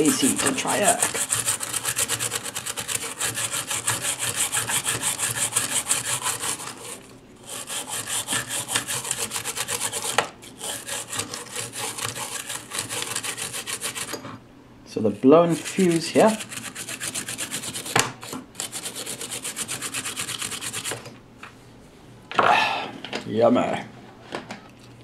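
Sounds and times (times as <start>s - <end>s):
toothbrush scrubbing circuit board: 0.0s - 14.1s, 15.5s - 17.9s, 18.6s - 21.0s.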